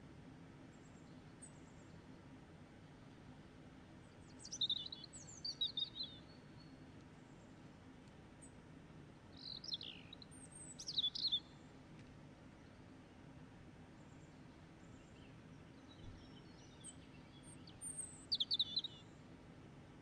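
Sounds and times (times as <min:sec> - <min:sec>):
faint steady hum: 0:00.0 - 0:20.0
small bird chirping: 0:04.4 - 0:06.7, 0:09.4 - 0:11.5, 0:16.0 - 0:19.0.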